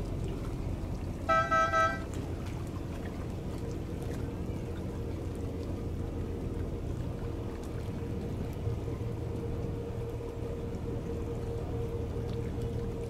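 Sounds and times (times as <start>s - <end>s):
ferry engine rumble: 0.0s - 13.0s
horn toots: 1.3s - 2.1s.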